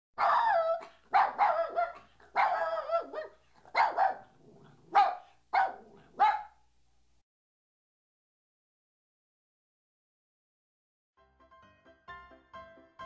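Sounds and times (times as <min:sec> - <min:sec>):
dog barking and yowling: 0:00.2 - 0:06.6.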